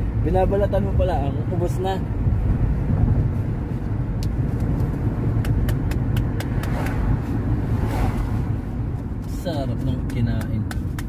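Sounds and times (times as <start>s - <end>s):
light sharp ticks: 4.2s - 7.0s, 9.2s - 11.0s.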